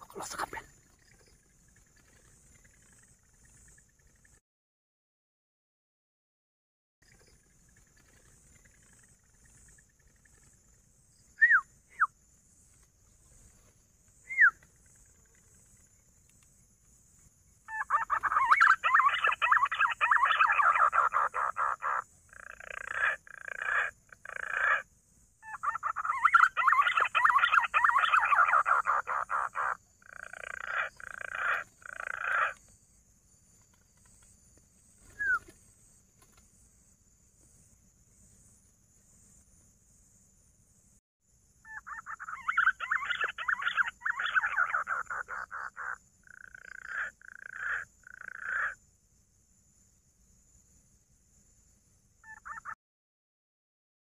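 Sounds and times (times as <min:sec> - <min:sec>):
pigeons calling: 0:17.7 - 0:24.8, 0:25.5 - 0:32.6, 0:35.0 - 0:35.6, 0:41.7 - 0:47.8.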